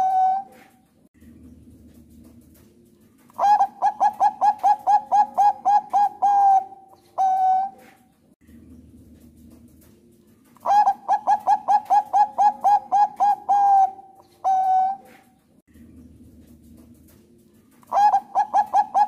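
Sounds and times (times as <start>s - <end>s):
dove cooing: 0.0s - 0.8s, 3.3s - 8.1s, 10.6s - 15.4s, 17.8s - 19.0s.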